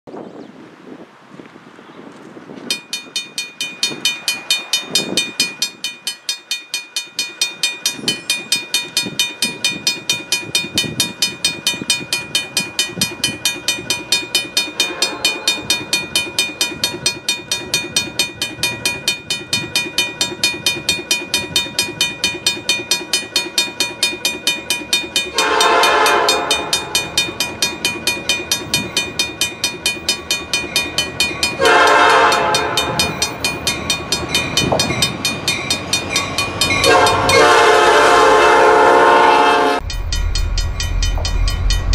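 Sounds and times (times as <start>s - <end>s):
diesel freight train approaching: 2.6s - 41.9s
crossing warning bell ringing: 2.7s - 41.9s
train air horn blasts: 14.8s - 15.7s, 25.3s - 27.0s, 31.6s - 33.1s, 36.8s - 39.8s.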